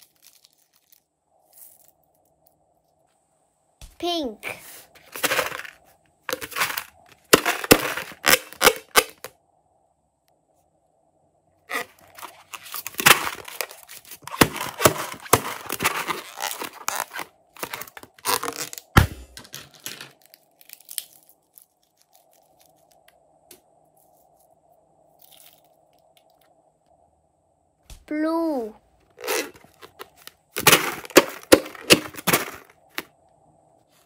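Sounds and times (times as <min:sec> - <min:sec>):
sharp thump: 0:19.0 - 0:19.4.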